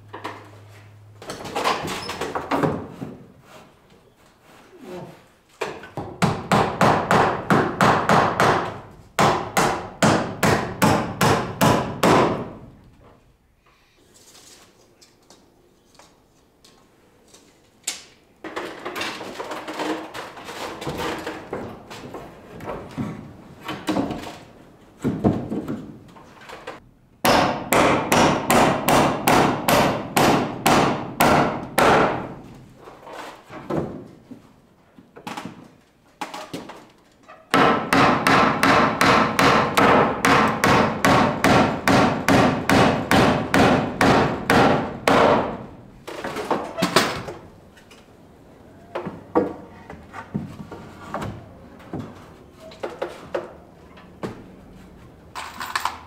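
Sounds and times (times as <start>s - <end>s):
hammer driving nails into wood: 5.9s - 12.6s, 27.2s - 32.4s, 37.5s - 45.6s.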